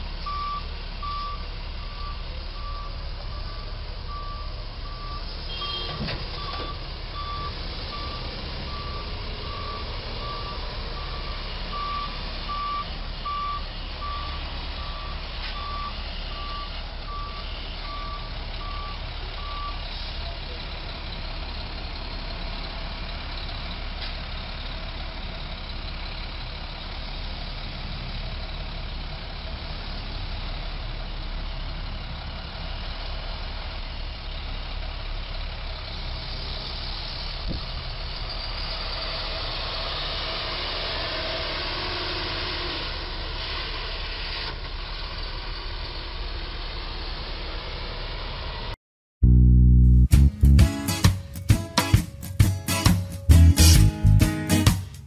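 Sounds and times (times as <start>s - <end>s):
truck and car engines running: 0.0s - 55.0s
loud music: 49.2s - 55.0s.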